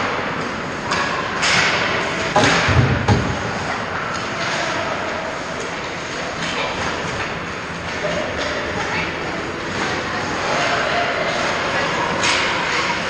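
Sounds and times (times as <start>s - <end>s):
stick and puck clacks: 0.0s - 9.0s, 9.6s - 13.0s.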